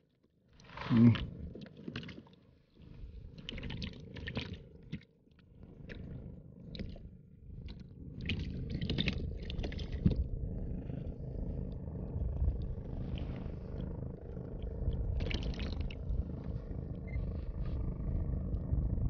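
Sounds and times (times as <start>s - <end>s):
water sloshing and splashing: 0.6s - 5.1s, 7.7s - 10.3s, 15.2s - 16.0s.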